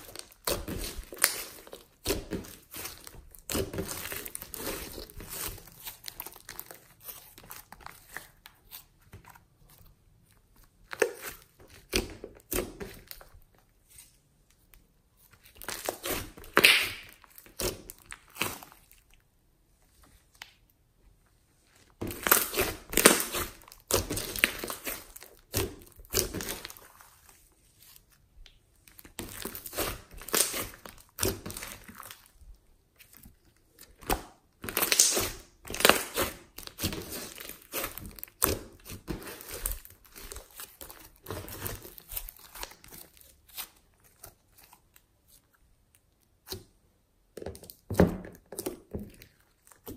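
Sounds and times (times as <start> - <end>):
hands squeezing sticky slime: 0.0 - 14.2, 15.2 - 19.3, 21.7 - 46.8.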